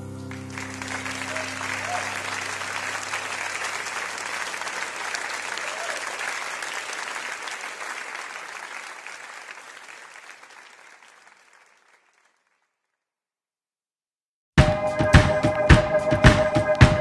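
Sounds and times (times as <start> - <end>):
crowd applauding: 0.0 - 12.9
music with drum beats: 14.6 - 17.0.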